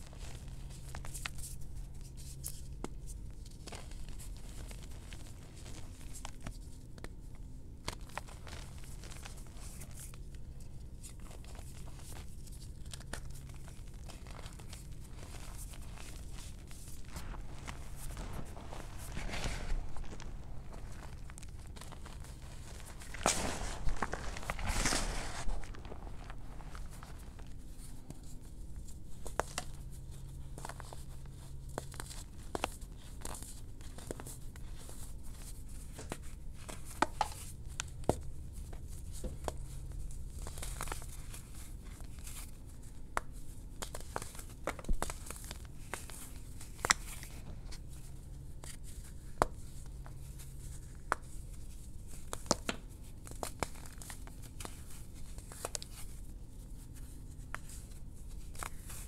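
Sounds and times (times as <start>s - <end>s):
chalk chunks crackling and snapping: 11.0s - 28.4s, 35.9s - 51.4s.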